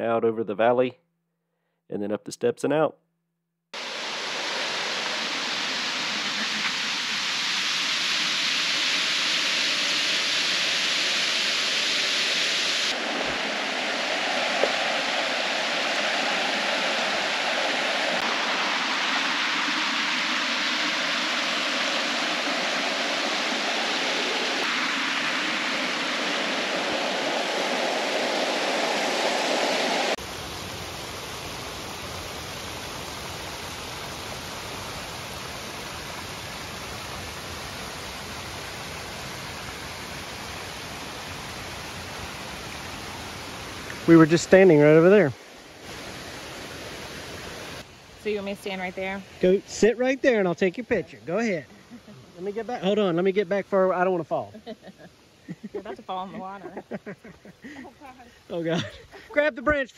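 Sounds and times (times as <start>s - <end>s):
waterfall pouring: 3.8s - 47.6s.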